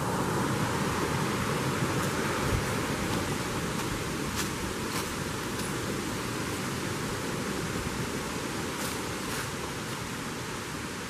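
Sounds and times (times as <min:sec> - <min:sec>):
footsteps on dry leaves: 0:02.0 - 0:10.2.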